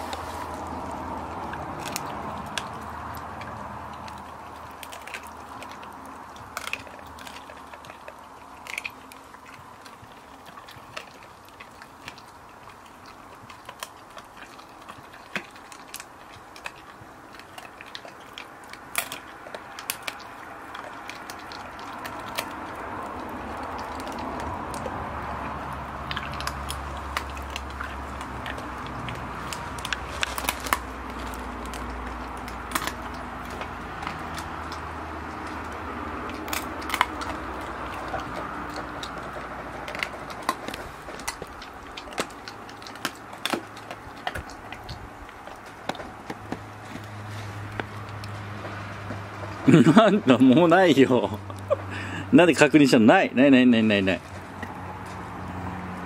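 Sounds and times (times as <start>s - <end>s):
dog chewing meat: 0.0s - 56.0s.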